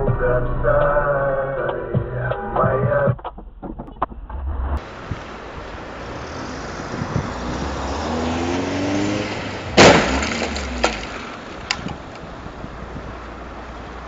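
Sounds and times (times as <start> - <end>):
engine speeding up: 4.2 - 11.4
loud crash impact: 9.5 - 11.5
debris clicks: 9.7 - 12.2.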